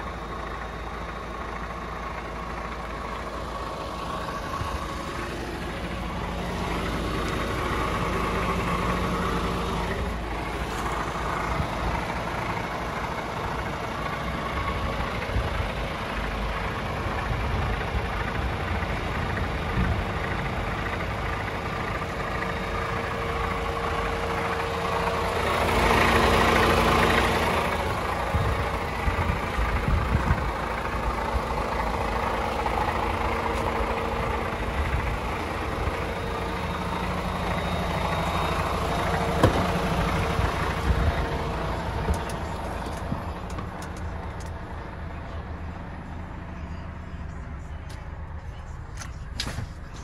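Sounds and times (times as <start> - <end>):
diesel truck engine idling: 0.0 - 50.0.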